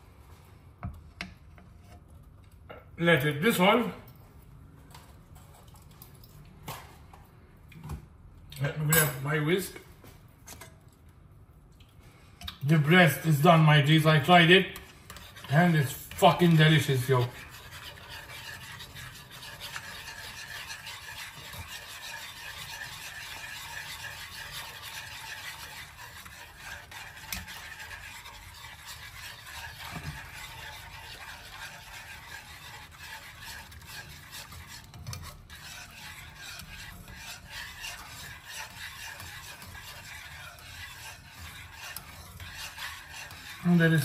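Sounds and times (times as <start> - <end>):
whisk scraping a pan: 12.8 - 44.0.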